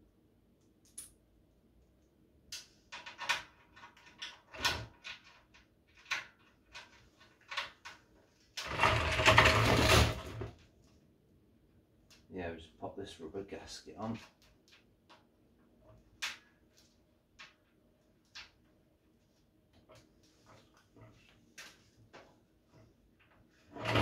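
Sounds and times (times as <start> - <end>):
drum scraping on concrete floor: 23.7 - 24.0.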